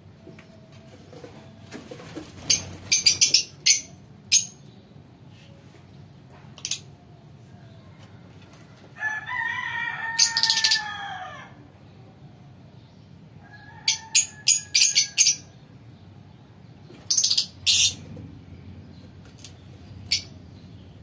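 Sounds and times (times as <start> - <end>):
lovebirds chirping shrilly: 2.4 - 4.6, 17.1 - 18.0.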